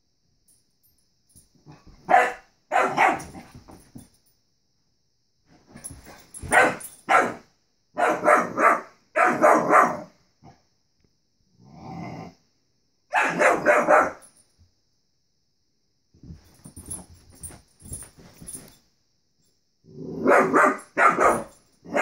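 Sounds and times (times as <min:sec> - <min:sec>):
young dog barking: 0:02.1 - 0:03.2, 0:06.5 - 0:07.4, 0:08.0 - 0:10.1, 0:13.1 - 0:14.2, 0:20.2 - 0:22.0.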